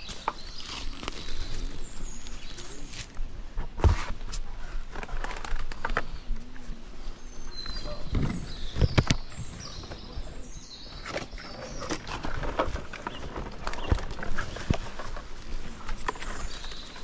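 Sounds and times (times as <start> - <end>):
palm fronds rustling and knocking: 0.0 - 6.6, 11.0 - 17.0
birds chirping: 0.0 - 17.0.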